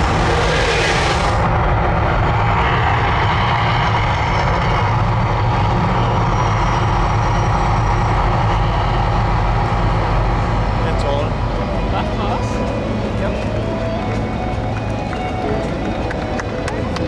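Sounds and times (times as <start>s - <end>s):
wash of noise: 0.0s - 7.1s
loud low rumble: 0.0s - 17.0s.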